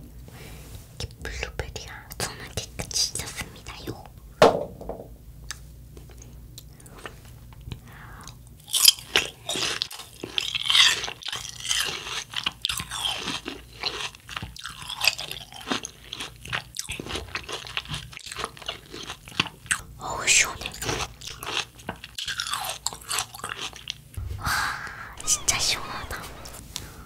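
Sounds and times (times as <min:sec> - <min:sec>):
watermelon crunching chewing: 0:06.0 - 0:24.0.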